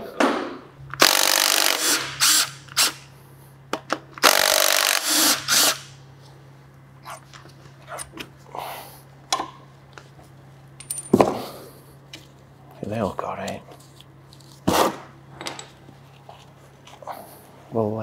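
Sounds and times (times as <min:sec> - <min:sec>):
cordless power tool running: 0:01.0 - 0:03.0, 0:04.2 - 0:05.9.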